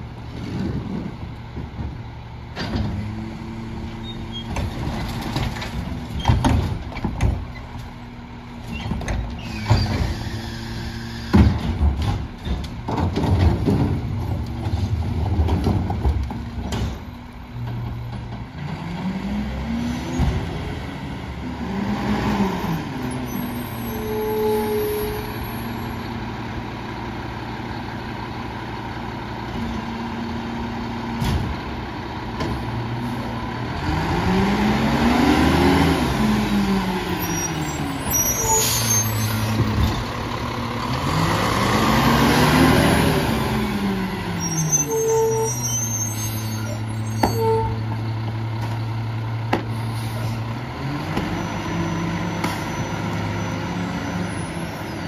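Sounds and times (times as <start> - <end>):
garbage truck accelerating: 0.0 - 55.0
trash cart banging: 11.3 - 18.6.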